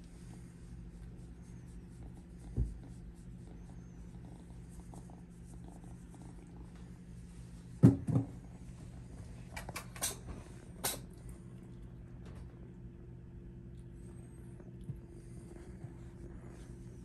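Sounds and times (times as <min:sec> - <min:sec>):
kitten purring: 0:00.0 - 0:17.0
soft bump: 0:07.8 - 0:08.4.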